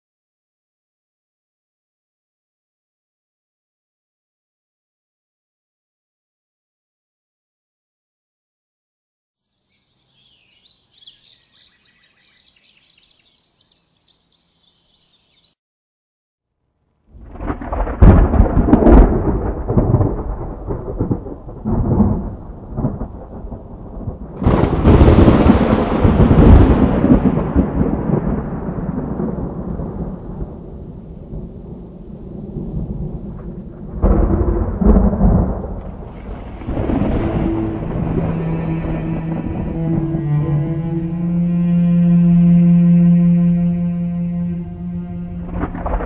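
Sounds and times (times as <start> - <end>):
thunder claps and rumble: 17.2 - 46.0.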